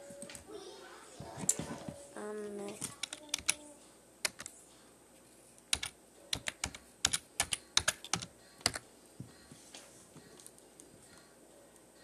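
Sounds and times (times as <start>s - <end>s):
keyboard typing: 2.7s - 3.6s, 4.2s - 4.6s, 5.7s - 8.8s.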